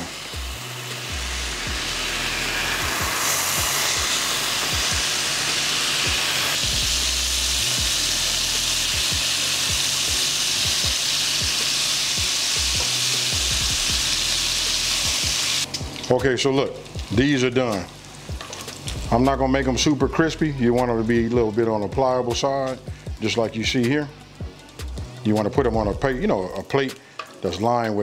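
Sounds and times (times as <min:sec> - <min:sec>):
bacon sizzling and spitting: 0:00.0 - 0:20.3.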